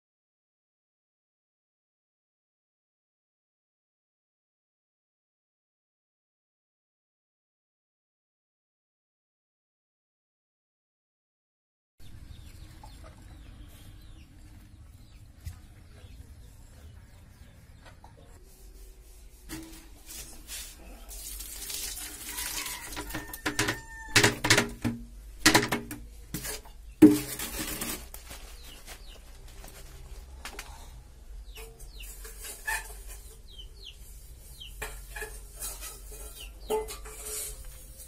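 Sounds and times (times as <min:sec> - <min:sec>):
chickens clucking: 0:12.2 - 0:18.5, 0:28.6 - 0:38.0
water splashing: 0:21.1 - 0:23.2.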